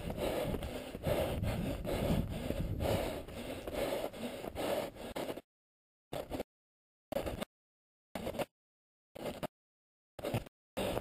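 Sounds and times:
hard rasping breathing: 0.0 - 5.5, 10.2 - 11.0
camera rubbing noise: 6.1 - 6.5, 7.1 - 7.5, 8.2 - 8.5, 9.2 - 9.5, 10.2 - 11.0.

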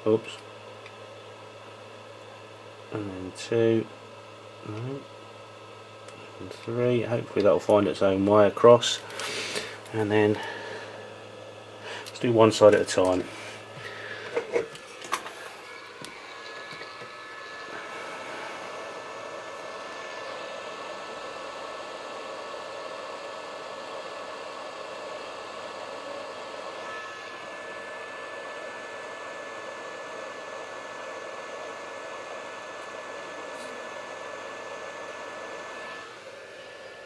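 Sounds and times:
faint high whine: 2.4 - 37.0
hot air blowing: 8.0 - 37.0.

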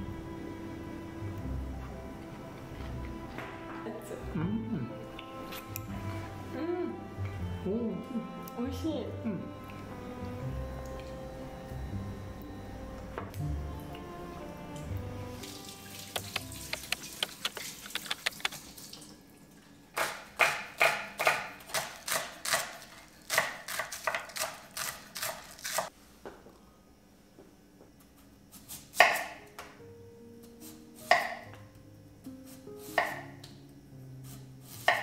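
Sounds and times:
knife chopping on cutting board: 20.0 - 22.7, 29.0 - 29.4, 31.0 - 31.4, 32.8 - 33.2, 34.8 - 35.0.

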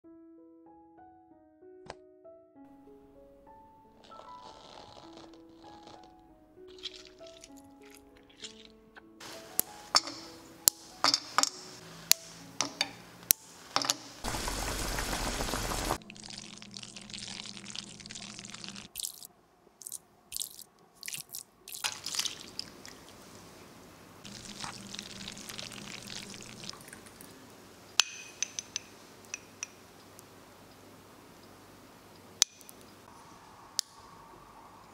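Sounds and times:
piano notes: 0.0 - 15.8
spoon stirring in ceramic bowl: 6.7 - 8.8, 9.6 - 13.0, 28.1 - 29.8
utensils knocking and clicking: 9.5 - 14.2, 28.0 - 29.8
loud rushing noise: 14.2 - 16.0.

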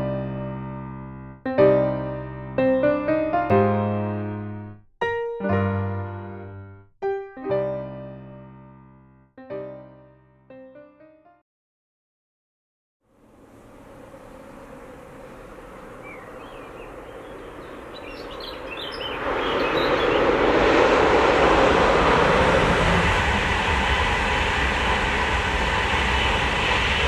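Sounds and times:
express train passing: 13.1 - 27.0.

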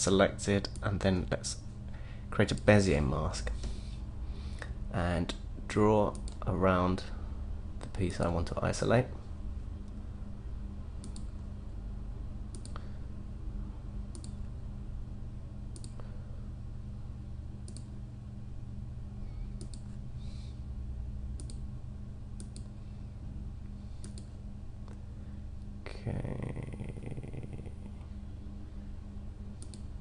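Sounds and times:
steady low hum: 0.0 - 30.0
computer mouse clicking: 11.0 - 11.4, 12.5 - 12.8, 14.1 - 14.4, 15.7 - 16.0, 17.6 - 17.9, 19.6 - 19.9, 21.4 - 21.6, 22.4 - 22.7, 24.0 - 24.3, 29.6 - 29.9.

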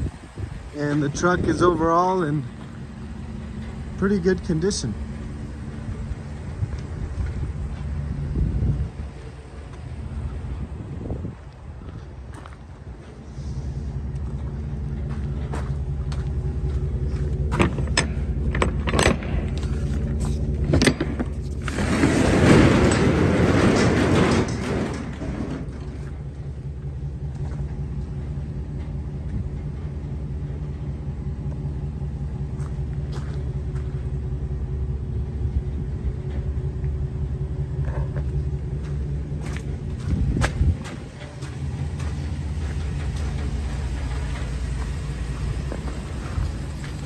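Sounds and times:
vehicle engine idling: 0.0 - 47.0
roll-up door rolling: 17.5 - 26.3
metal latch clicks and knocks: 17.6 - 19.6, 20.7 - 21.3.

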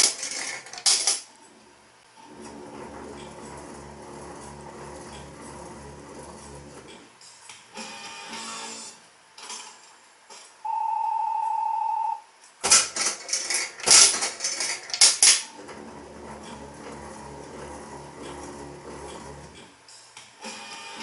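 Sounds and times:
metallic clatter of coins: 0.0 - 1.3
reels spinning with low hum: 0.0 - 10.6, 12.6 - 21.0.

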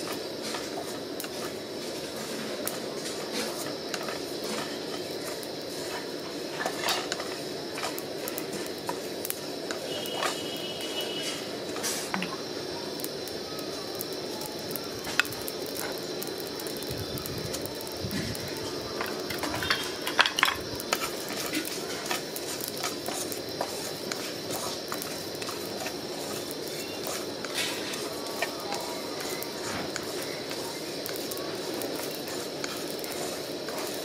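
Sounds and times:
steady hiss: 0.0 - 34.0
seeds clicking and rustling: 13.0 - 34.0
wooden spatula scraping a pan: 20.9 - 31.3, 32.0 - 34.0.

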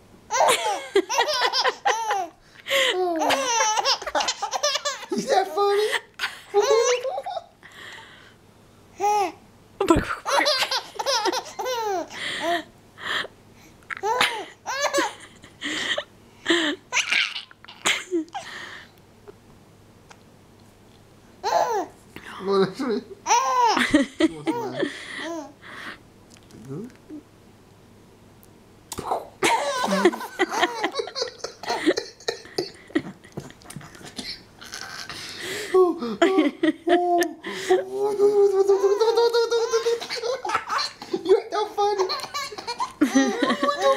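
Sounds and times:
baby laughing: 0.3 - 7.5, 10.2 - 12.6, 13.9 - 15.3, 16.9 - 18.4, 21.4 - 21.9, 23.2 - 25.6, 29.1 - 35.3, 36.2 - 43.9.

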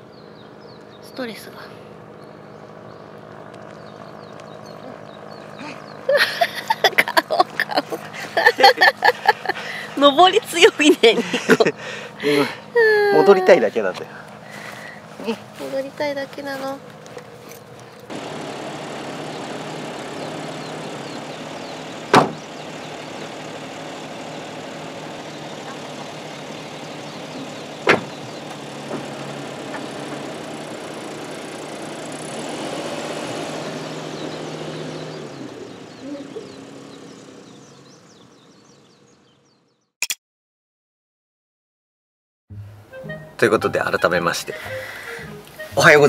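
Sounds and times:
van engine running: 0.0 - 39.9, 43.7 - 46.0
door slams: 22.1 - 22.4, 27.8 - 28.2.

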